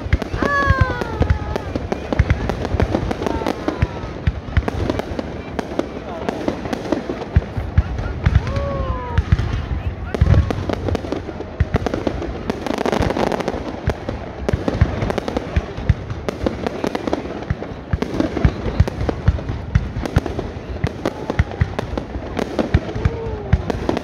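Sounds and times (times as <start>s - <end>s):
fireworks bangs and pops: 0.0s - 24.0s
fireworks crackling: 0.0s - 24.0s.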